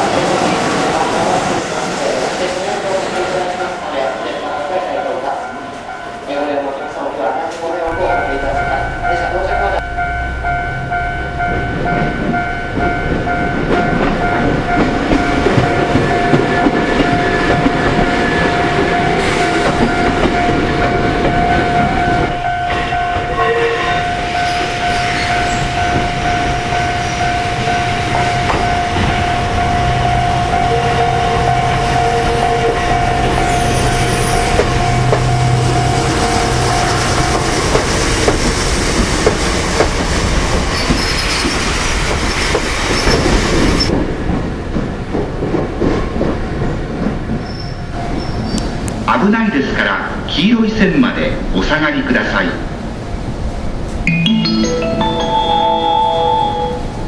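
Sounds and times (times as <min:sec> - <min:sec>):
level-crossing warning bell ringing: 0:03.2 - 0:38.4, 0:54.0 - 0:57.0
train wheels clattering on rails: 0:11.5 - 0:23.4, 0:24.0 - 0:30.8, 0:31.4 - 0:49.1.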